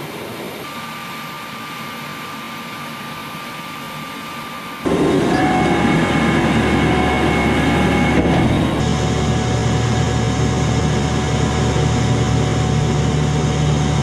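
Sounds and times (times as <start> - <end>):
high machine whine: 0.0 - 14.0
heavy machinery running: 4.8 - 14.0.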